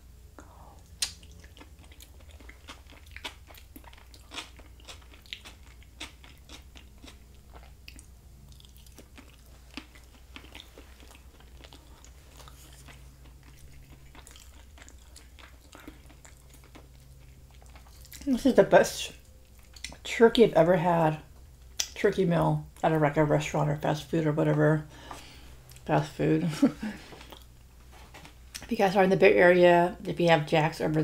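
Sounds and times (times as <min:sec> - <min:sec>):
faint low hum: 0:00.0 - 0:31.0
wet chewing mouth clicks: 0:00.8 - 0:18.3.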